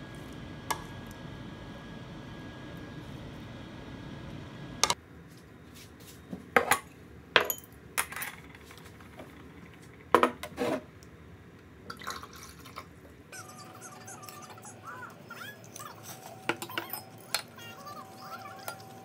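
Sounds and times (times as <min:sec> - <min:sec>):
metal utensils clinking on bowls: 0:15.6 - 0:19.0.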